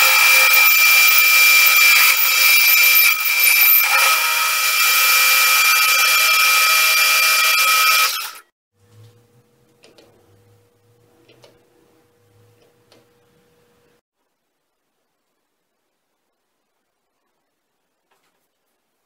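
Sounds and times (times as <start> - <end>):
metal lathe cutting with high whine: 0.0 - 8.4.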